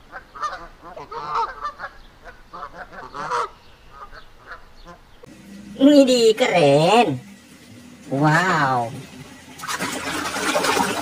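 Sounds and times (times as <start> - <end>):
geese honking: 0.0 - 5.3.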